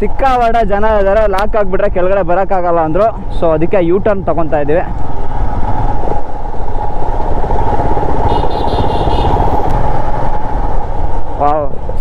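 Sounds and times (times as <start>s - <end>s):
wind noise on microphone: 0.0s - 12.0s
motorcycle engine running: 5.1s - 11.2s.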